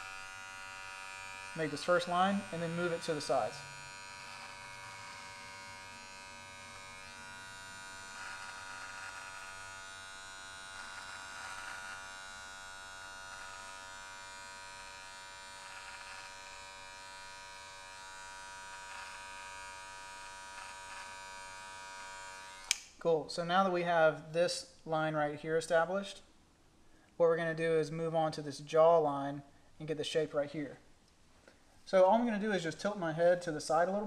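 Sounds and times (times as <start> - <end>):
clipper blades rasping through hair: 0.0 - 22.9
hair clippers buzzing: 0.0 - 22.9.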